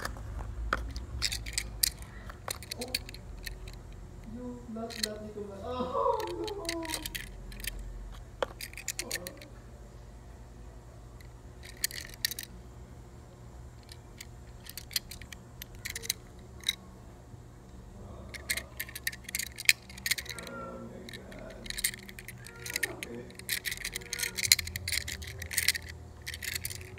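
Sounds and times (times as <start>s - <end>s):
toy car clicks and taps: 0.0s - 3.8s, 4.9s - 5.2s, 6.1s - 7.8s, 8.4s - 9.5s, 11.6s - 12.5s, 13.8s - 16.8s, 18.3s - 26.9s
low steady hum: 0.0s - 26.9s.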